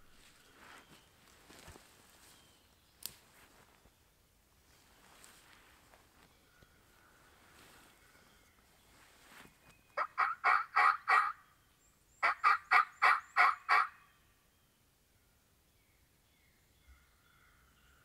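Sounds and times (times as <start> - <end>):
turkey calling raspy notes: 10.0 - 11.5, 12.2 - 14.2.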